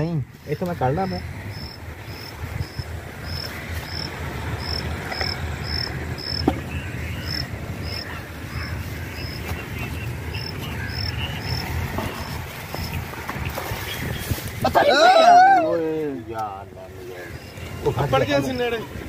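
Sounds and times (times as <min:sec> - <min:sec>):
cricket chirping: 0:00.4 - 0:13.0.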